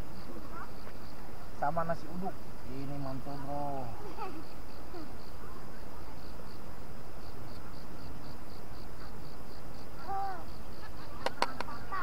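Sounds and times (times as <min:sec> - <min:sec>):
insects chirping: 0:00.0 - 0:12.0
faint voice: 0:10.0 - 0:10.5.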